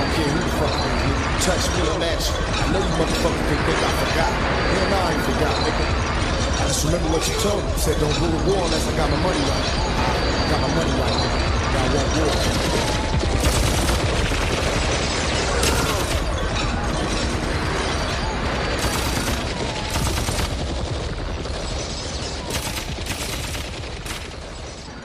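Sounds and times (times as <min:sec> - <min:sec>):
rapid gunfire: 0:11.1 - 0:25.0.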